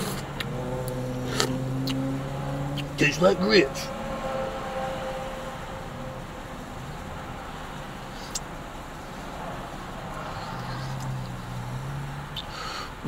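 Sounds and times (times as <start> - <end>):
car engine idling hum: 0.0 - 13.0.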